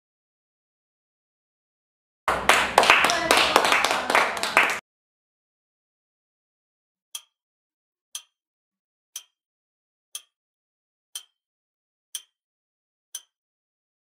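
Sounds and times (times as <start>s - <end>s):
people clapping: 2.3s - 4.8s
sharp clock ticks: 7.2s - 7.4s, 8.1s - 8.4s, 9.2s - 9.4s, 10.1s - 10.4s, 11.1s - 11.4s, 12.1s - 12.4s, 13.2s - 13.4s.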